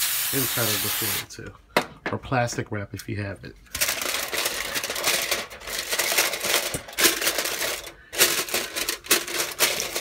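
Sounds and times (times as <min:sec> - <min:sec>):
aluminium foil crinkling: 0:03.7 - 0:10.0.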